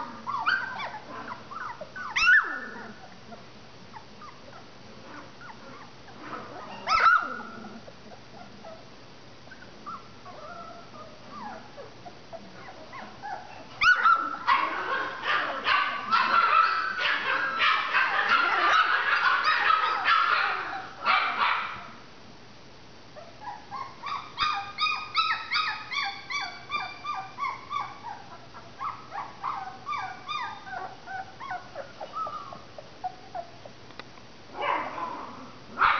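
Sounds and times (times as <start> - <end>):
puppies whimpering and yipping: 0.0 - 8.9, 9.5 - 21.0, 23.2 - 33.8.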